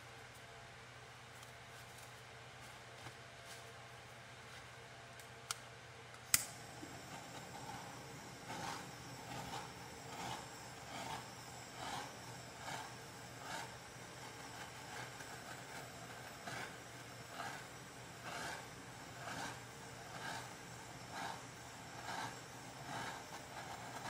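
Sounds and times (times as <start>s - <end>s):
butane torch hissing: 6.3s - 24.0s.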